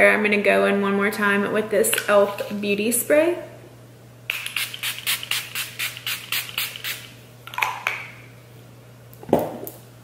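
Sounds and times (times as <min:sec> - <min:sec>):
spray bottle spritzes: 0:04.3 - 0:07.1.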